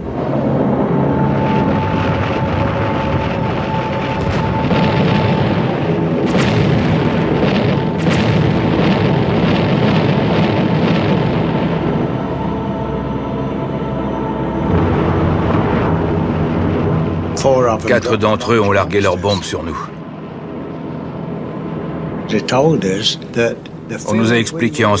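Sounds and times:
bomb explosions: 0.0s - 22.6s
music: 0.0s - 25.0s.

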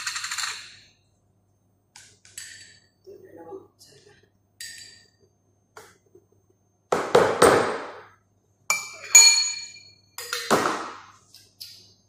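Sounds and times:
ringing clinks of utensils: 8.7s - 10.5s.

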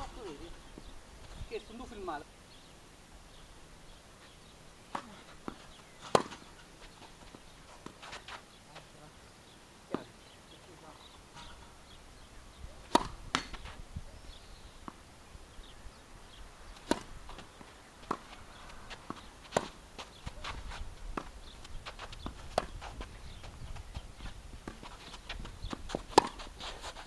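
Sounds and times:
tennis ball bouncing on court: 4.9s - 8.3s, 12.9s - 13.7s, 16.8s - 20.6s, 24.6s - 26.5s
tennis ball struck by rackets: 4.9s - 8.3s, 12.8s - 13.7s, 16.8s - 20.6s, 25.7s - 26.5s.

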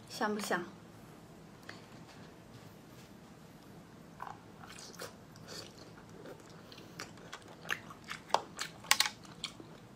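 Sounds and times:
person chewing and biting: 4.2s - 9.9s.

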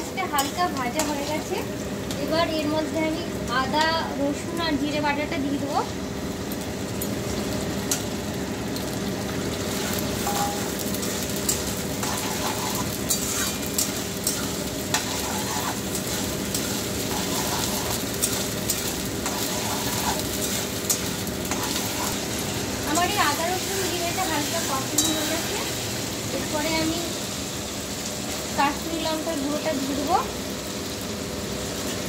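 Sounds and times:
onions sizzling in hot oil: 0.0s - 32.0s
metal spatula scraping a pan: 9.7s - 10.7s, 11.4s - 22.2s.

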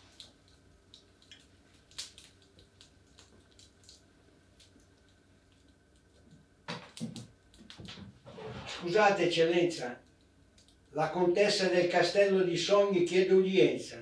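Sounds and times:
small drip-like ticks: 0.0s - 7.8s, 10.0s - 11.0s
faint steady hum: 0.0s - 14.0s.

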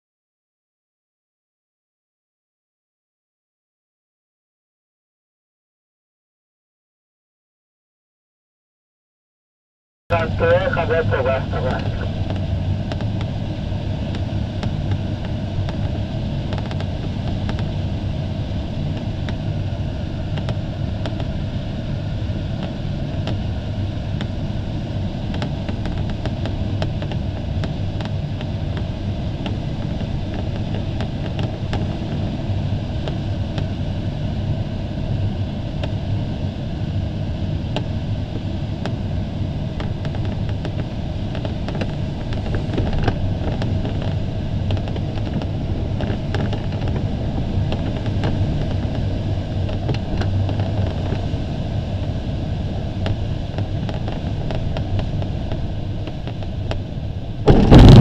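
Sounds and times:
low rumble: 52.3s - 58.0s.

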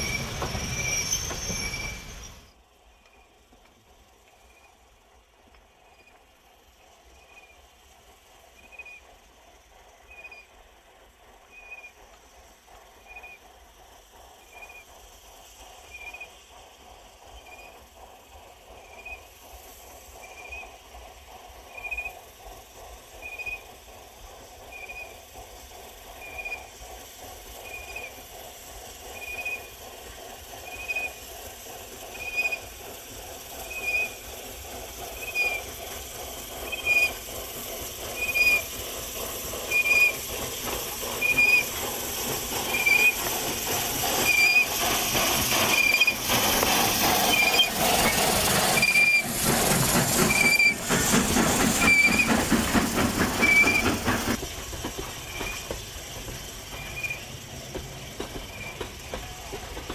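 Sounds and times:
short high-pitched squeak: 0.0s - 2.5s
steam hiss: 0.0s - 59.9s
steam locomotive: 0.0s - 59.9s.

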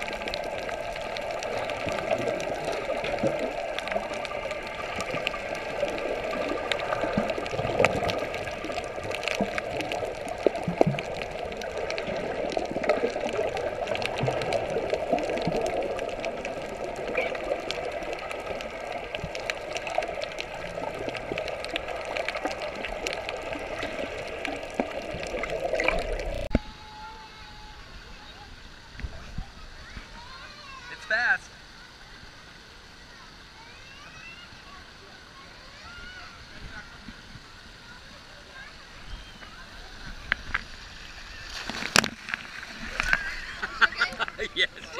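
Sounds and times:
sharp clicks and crackles: 0.0s - 26.6s, 39.4s - 43.4s
muffled water rush: 0.0s - 44.9s.

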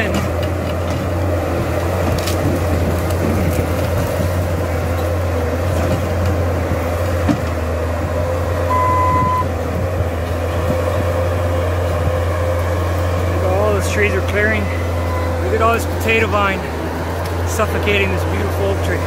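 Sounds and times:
diesel engine under load: 0.0s - 19.0s
short beep: 8.7s - 9.5s.

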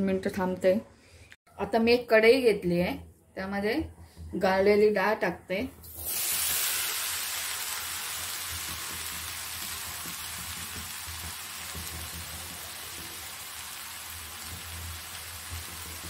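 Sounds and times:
lentils sizzling in a hot pan: 5.9s - 16.0s.

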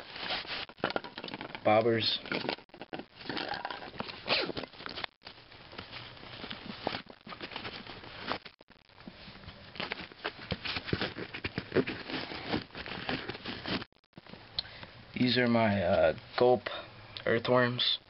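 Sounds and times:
fabric and plastic rustling: 0.0s - 14.4s.

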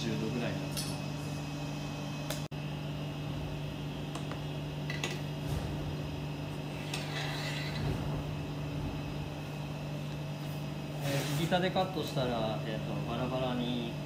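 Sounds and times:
kitchen machinery humming: 0.0s - 14.0s
metal board scraping: 6.7s - 8.1s.

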